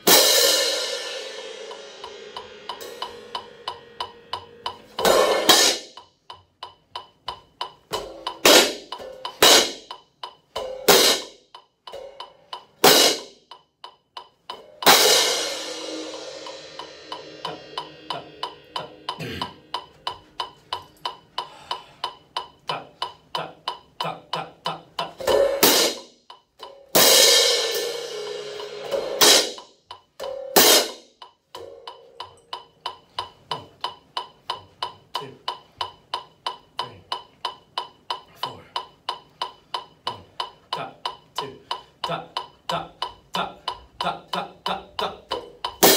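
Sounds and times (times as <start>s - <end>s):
hand crash cymbals struck together: 0.0s - 6.0s, 14.8s - 20.5s, 26.9s - 32.0s
quick steady ticking: 5.9s - 10.6s, 17.1s - 25.2s, 31.1s - 45.8s.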